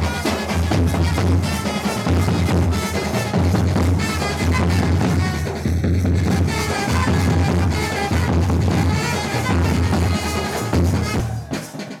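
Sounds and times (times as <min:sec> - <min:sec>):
wind instrument melody: 0:00.0 - 0:11.8.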